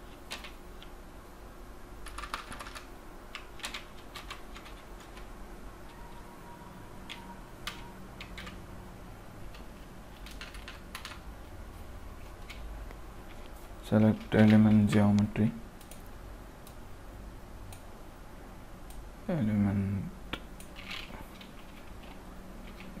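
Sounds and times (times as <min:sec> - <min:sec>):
computer keyboard typing: 0:00.1 - 0:00.9, 0:02.0 - 0:06.2, 0:07.0 - 0:08.7, 0:09.4 - 0:11.3, 0:14.0 - 0:16.8.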